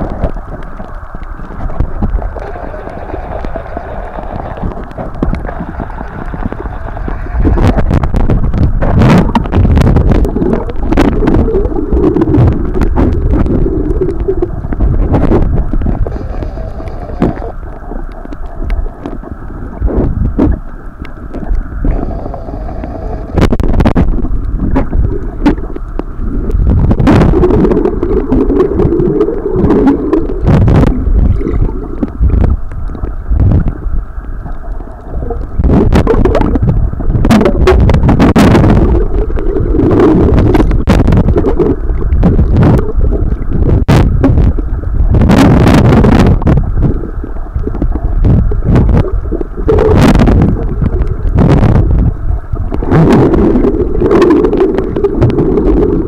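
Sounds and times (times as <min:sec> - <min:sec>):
underwater water churning: 0:00.0 - 0:56.0
sharp underwater clicks: 0:23.4 - 0:56.0.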